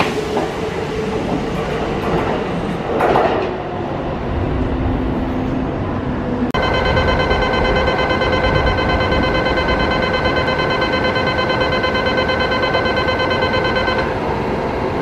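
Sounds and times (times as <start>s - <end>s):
electronic departure tone: 6.6s - 14.2s.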